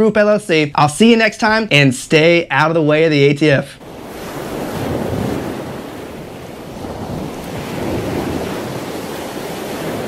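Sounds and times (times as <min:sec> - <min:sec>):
wind: 0:00.0 - 0:10.0
ocean waves: 0:03.8 - 0:10.0.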